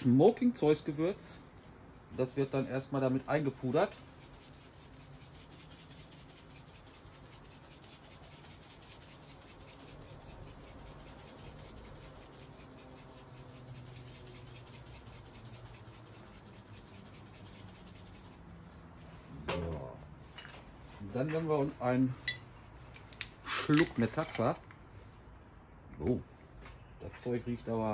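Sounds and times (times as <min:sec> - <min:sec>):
spice jar shaken rattling: 0:02.4 - 0:18.4.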